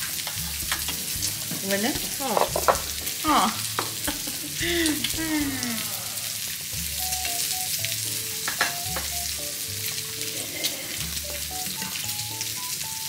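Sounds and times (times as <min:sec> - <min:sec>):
background music with low beat: 0:00.0 - 0:05.7, 0:06.7 - 0:10.2, 0:11.0 - 0:12.9
meat sizzling on a grill: 0:00.0 - 0:13.0.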